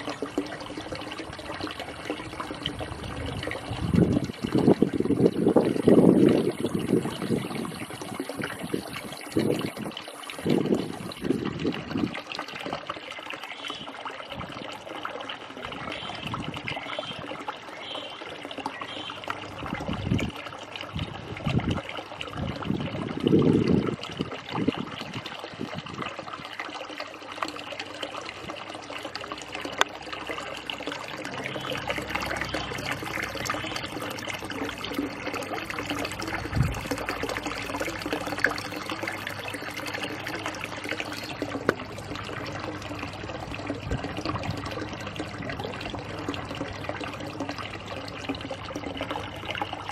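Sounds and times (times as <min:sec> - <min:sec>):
water trickling into a pond: 0:00.0 - 0:49.9.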